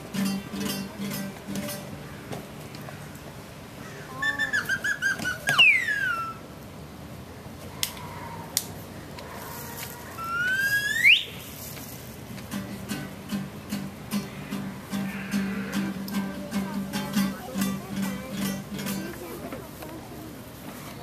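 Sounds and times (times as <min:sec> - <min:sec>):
whistle-like chirps and glides: 0:04.2 - 0:06.4, 0:10.2 - 0:11.4.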